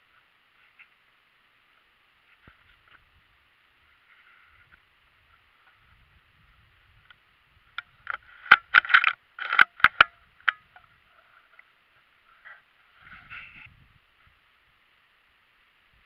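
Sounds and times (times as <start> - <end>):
faint steady hiss: 0.0 - 16.0
rifle handling clicks and scrapes: 8.0 - 11.7.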